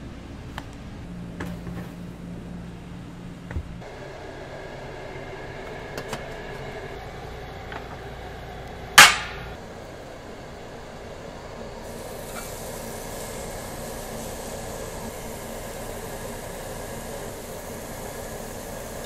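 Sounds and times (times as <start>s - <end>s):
faint hiss: 6.7s - 19.0s
metal clank with ring: 9.0s - 9.6s.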